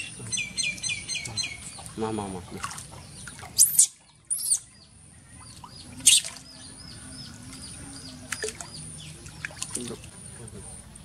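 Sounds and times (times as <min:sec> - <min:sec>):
water splashing: 0:00.0 - 0:04.5, 0:05.4 - 0:11.0
baby monkey squeaking: 0:03.6 - 0:04.6, 0:06.0 - 0:06.3.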